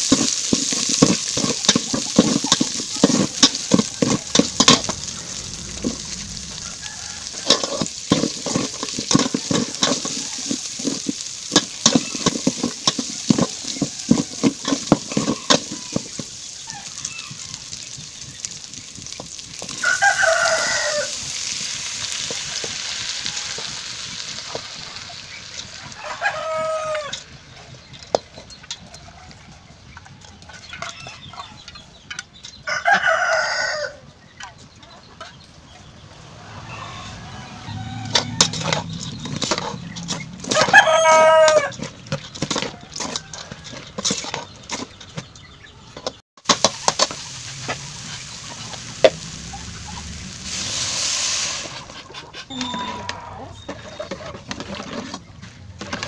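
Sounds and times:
metal spoon scraping a pot: 0:00.0 - 0:05.0, 0:07.4 - 0:16.2
meat sizzling in hot oil: 0:00.0 - 0:27.6, 0:46.4 - 0:52.0
rooster crowing: 0:03.9 - 0:07.9, 0:19.7 - 0:21.3, 0:22.3 - 0:23.8, 0:25.8 - 0:27.2, 0:32.6 - 0:34.1, 0:36.2 - 0:41.9.

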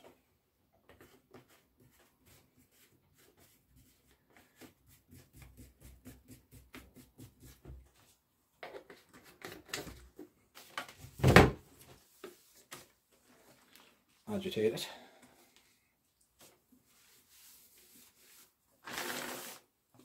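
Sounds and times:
cloth rubbing bottle: 0:16.9 - 0:19.6.

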